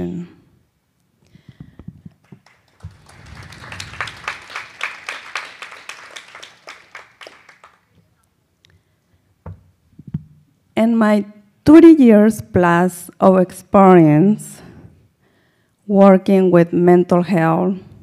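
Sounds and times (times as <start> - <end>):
audience applauding: 2.2 - 8.0.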